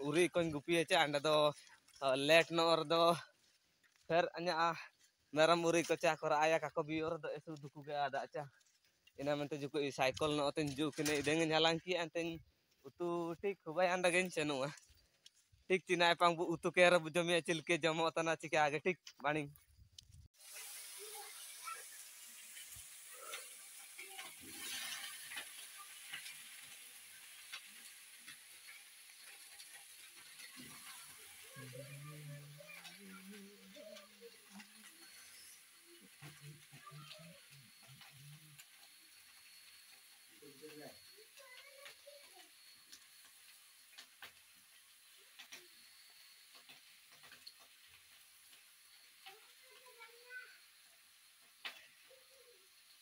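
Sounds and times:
rustling or splashing: 0:20.1 - 0:53.0
faint high hiss: 0:20.4 - 0:53.0.

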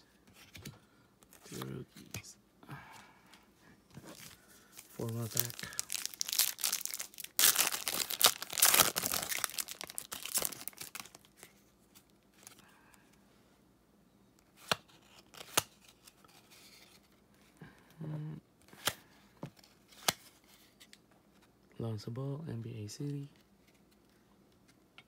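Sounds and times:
foil wrapper tearing and crinkling: 0:05.0 - 0:11.4.

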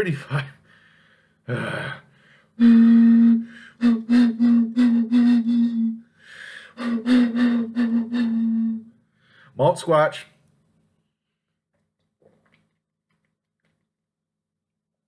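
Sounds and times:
man humming into glass bottle: 0:02.6 - 0:06.0, 0:06.8 - 0:08.9
breathy gasp: 0:06.1 - 0:08.2.

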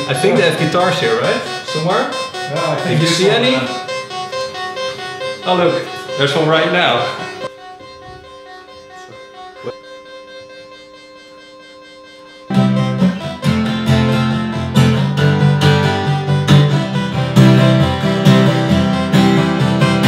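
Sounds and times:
acoustic guitar strumming: 0:00.0 - 0:11.5, 0:12.1 - 0:20.0
faint steady held tones: 0:00.0 - 0:20.0
synthesizer notes: 0:00.0 - 0:20.0.

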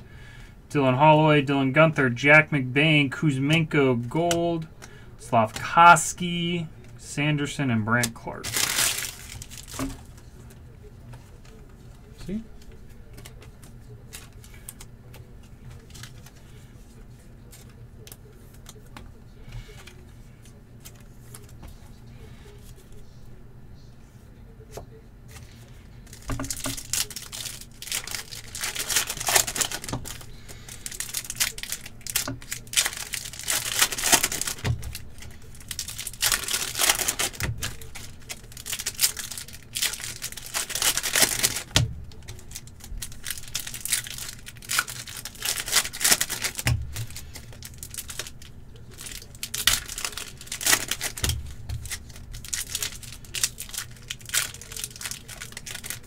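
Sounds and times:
foil packs tearing and crinkling: 0:08.0 - 0:10.1, 0:25.4 - 0:56.0.

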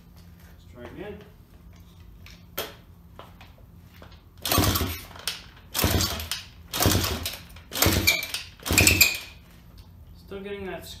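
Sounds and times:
motorcycle engine kick-starting: 0:04.4 - 0:09.4.

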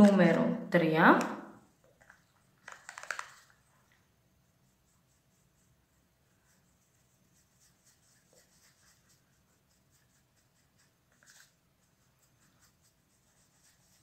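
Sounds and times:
makeup brush strokes on skin: 0:03.0 - 0:14.0.

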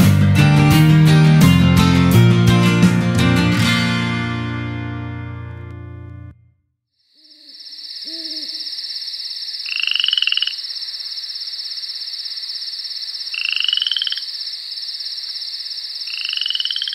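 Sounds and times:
frogs croaking: 0:07.0 - 0:16.9
high-pitched insect trill: 0:07.0 - 0:16.9
owl hoot: 0:07.2 - 0:09.0.

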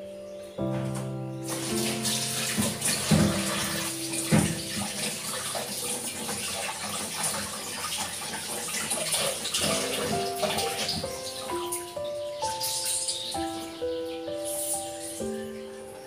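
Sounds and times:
things knocking in water: 0:00.7 - 0:11.9
tap running into a sink: 0:00.8 - 0:11.9.

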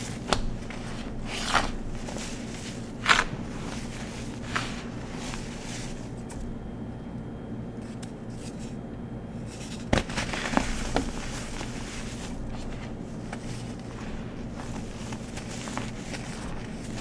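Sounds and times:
rustling of loose powder: 0:00.0 - 0:06.2, 0:09.5 - 0:17.0
powder crackling as it crumbles: 0:09.6 - 0:17.0.

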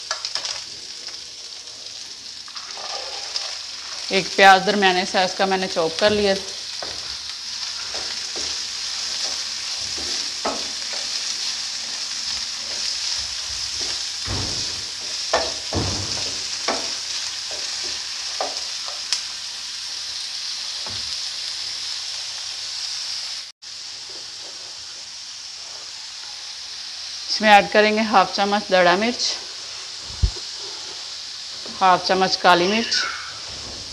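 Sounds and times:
onions sizzling in hot oil: 0:00.0 - 0:33.9
spatula scraping pan: 0:02.6 - 0:04.2.

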